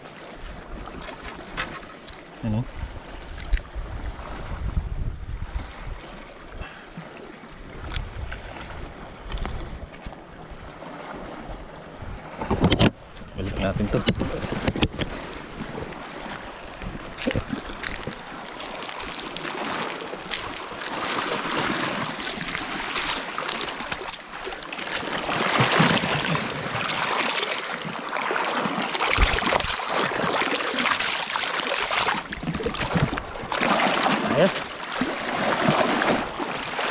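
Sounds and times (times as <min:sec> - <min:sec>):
water gurgling among rocks: 0:13.4 - 0:36.9.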